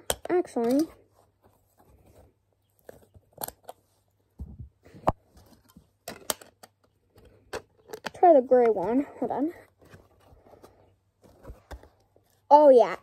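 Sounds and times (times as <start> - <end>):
plastic bricks clicking and tapping: 0.0 - 1.0, 5.6 - 9.0.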